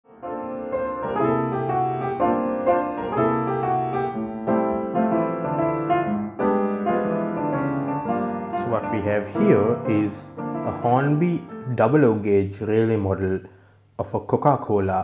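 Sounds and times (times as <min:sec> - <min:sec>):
slow keyboard chords: 0:00.3 - 0:12.1.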